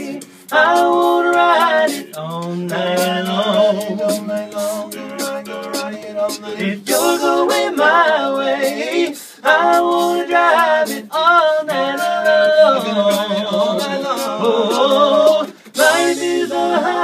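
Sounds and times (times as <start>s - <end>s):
mouth percussion clicks: 0.0s - 7.6s
vocal group singing in harmony: 0.0s - 17.0s.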